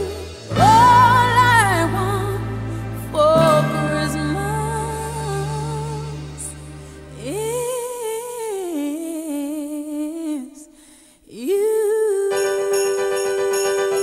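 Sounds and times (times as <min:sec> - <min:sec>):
instrumental music with jingling beat: 0:12.4 - 0:14.0.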